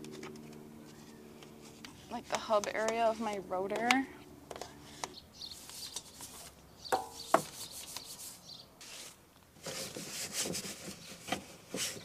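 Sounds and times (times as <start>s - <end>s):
brush scrubbing car wheel: 7.2s - 11.0s.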